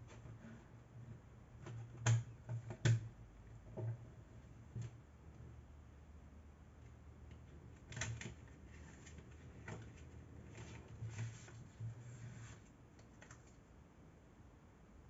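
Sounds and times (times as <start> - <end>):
paper rustling: 8.3 - 13.6.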